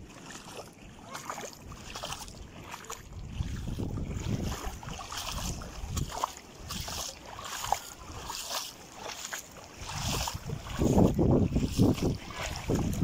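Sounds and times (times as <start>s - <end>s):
gusty wind buffeting microphone: 3.2s - 6.9s, 9.8s - 13.0s.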